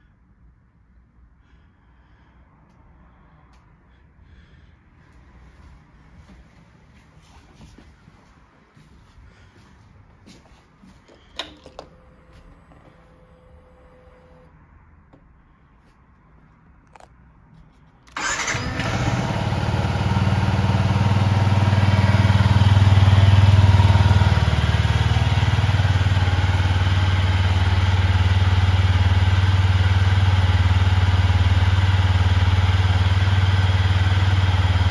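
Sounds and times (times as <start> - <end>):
motorcycle engine starting and idling: 11.1 - 14.5, 18.1 - 34.9.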